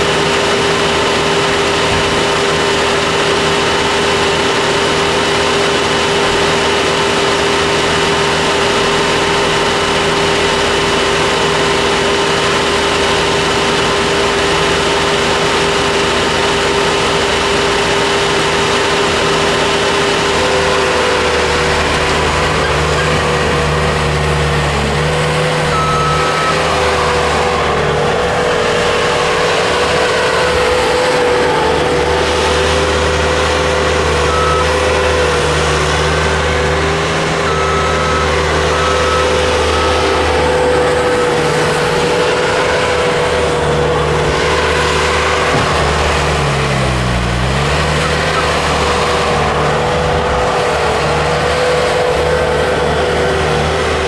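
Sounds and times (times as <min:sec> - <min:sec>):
heavy machinery engines: 0:00.0 - 0:54.0
steady whine: 0:00.0 - 0:54.0
short beeps: 0:20.4 - 0:31.0, 0:31.9 - 0:36.8, 0:37.4 - 0:47.0.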